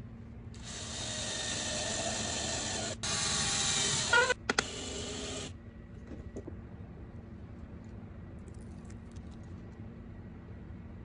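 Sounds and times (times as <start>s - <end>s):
cordless drill drilling: 0.6s - 5.5s
drill motor whine: 0.6s - 5.5s.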